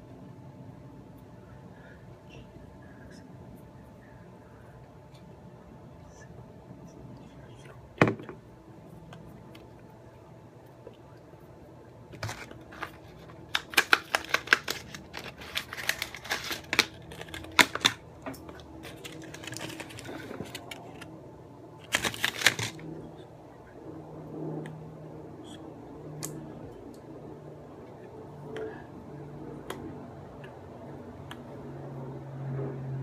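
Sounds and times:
plastic blister pack crackling: 12.2 - 21.1, 21.8 - 22.8.

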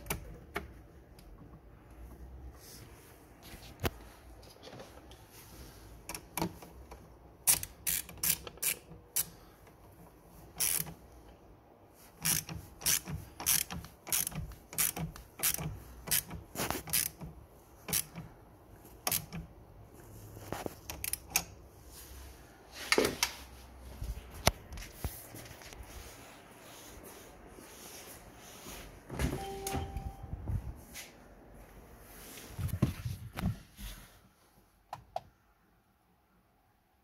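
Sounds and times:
hand ratchet clicking: 7.4 - 9.4, 10.6 - 11.0, 12.2 - 18.3, 19.0 - 19.4.

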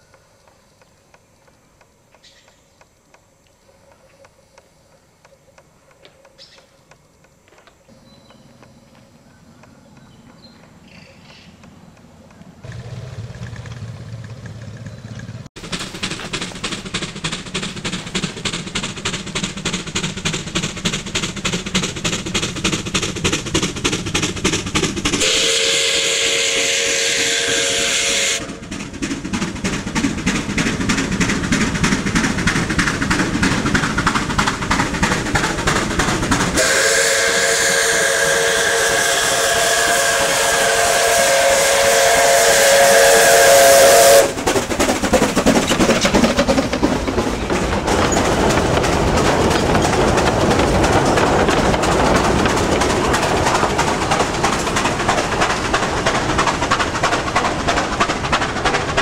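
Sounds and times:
steam locomotive exhaust beats: 0.0 - 59.0
steam locomotive whistle: 25.2 - 28.8, 36.6 - 44.4.

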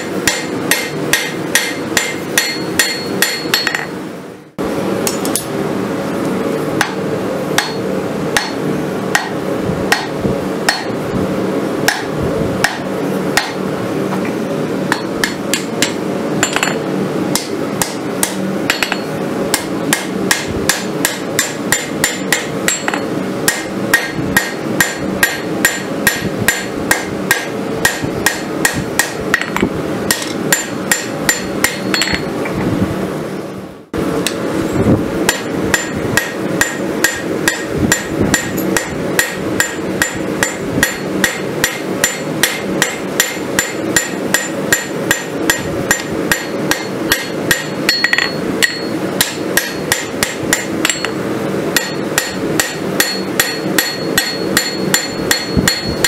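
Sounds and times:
hammer striking hot steel on anvil: 0.0 - 4.0, 5.0 - 5.6, 6.8 - 11.0, 11.8 - 13.7, 14.9 - 32.3, 35.2 - 56.0
anvil ringing: 0.2 - 4.0, 7.6 - 8.6, 14.9 - 16.8, 17.8 - 32.3, 35.3 - 51.2, 51.8 - 56.0.

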